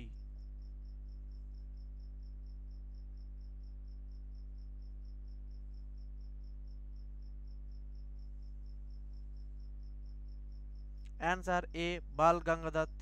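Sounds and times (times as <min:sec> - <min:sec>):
cricket chirping: 0:00.0 - 0:13.0
low electrical hum: 0:00.0 - 0:13.0.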